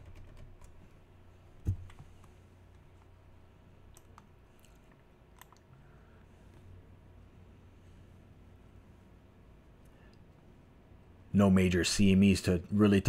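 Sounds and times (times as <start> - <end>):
low steady hum: 0.0 - 13.0
mouse and keyboard clicks: 3.9 - 5.6.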